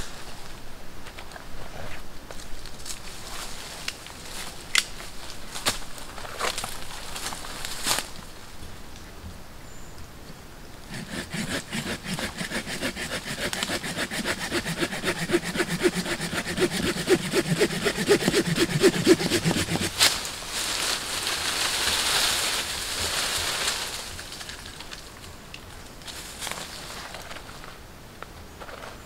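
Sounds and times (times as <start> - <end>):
rustle of leaves and branches: 0.0 - 10.9, 19.9 - 29.0
hand saw cutting wood: 10.9 - 20.2.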